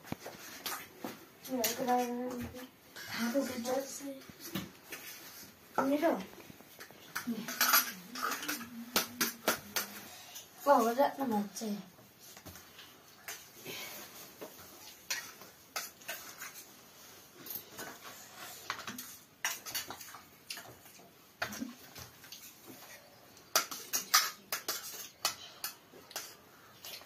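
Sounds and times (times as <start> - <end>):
metal dishes and utensils clinking: 6.8 - 10.0, 17.4 - 27.0.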